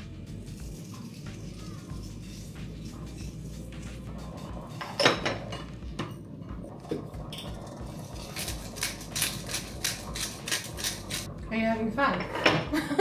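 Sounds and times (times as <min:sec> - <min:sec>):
utensils clinking against pots: 0:04.0 - 0:11.3, 0:12.0 - 0:12.8.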